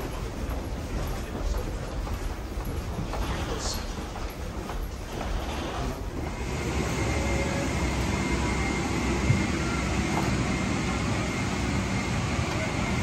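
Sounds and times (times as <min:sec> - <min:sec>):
cabin air system drone: 0:04.9 - 0:13.0
faint high whine: 0:06.2 - 0:13.0.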